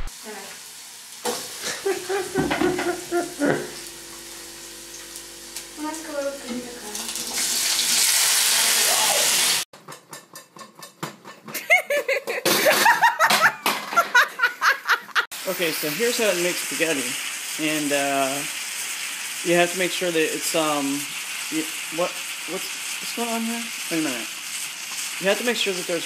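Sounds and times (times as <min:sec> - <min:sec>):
potatoes sizzling in hot oil: 0:00.0 - 0:09.7, 0:15.3 - 0:26.0
voices and laughter: 0:01.6 - 0:03.8.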